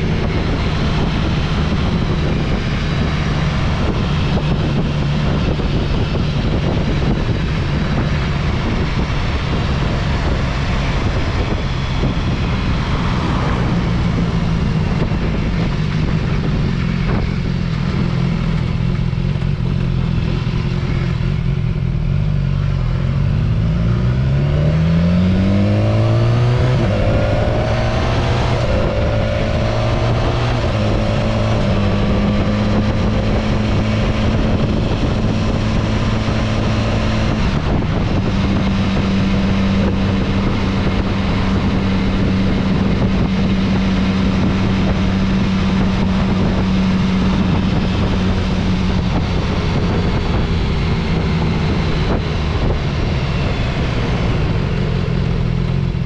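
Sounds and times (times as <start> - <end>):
motorcycle engine accelerating: 0.0 - 56.0
wind noise: 0.0 - 56.0.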